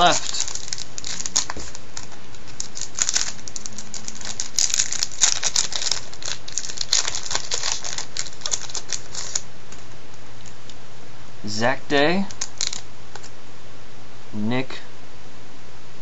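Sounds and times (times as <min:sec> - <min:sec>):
wrapper tearing and crinkling: 0:00.0 - 0:09.5, 0:12.3 - 0:13.3.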